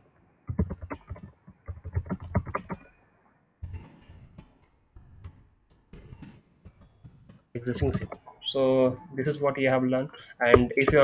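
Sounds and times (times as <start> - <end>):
typing on a computer keyboard: 0.5 - 2.9.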